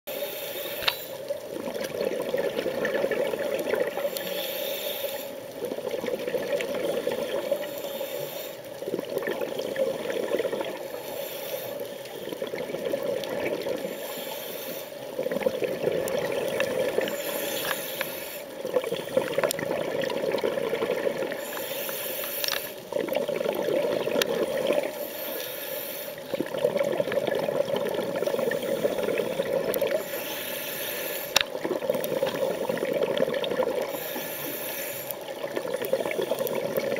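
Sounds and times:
regulator inhalation hiss: 0.1s - 1.3s, 4.0s - 5.4s, 7.6s - 8.7s, 10.9s - 12.2s, 13.8s - 15.1s, 16.9s - 19.4s, 21.4s - 22.8s, 24.9s - 26.3s, 28.3s - 31.4s, 33.9s - 36.7s
exhaled bubbles rushing: 1.6s - 4.0s, 15.2s - 17.2s, 18.6s - 21.4s, 22.9s - 25.0s, 26.3s - 30.0s, 31.5s - 34.0s.

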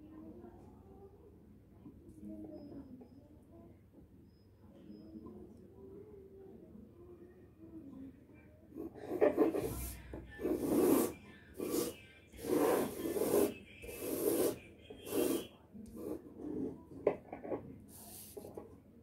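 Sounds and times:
compass scratching on paper: 8.7s - 18.7s.

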